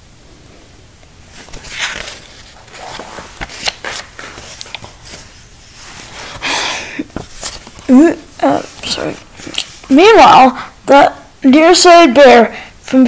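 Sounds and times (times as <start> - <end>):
paper rustling: 1.3 - 10.0.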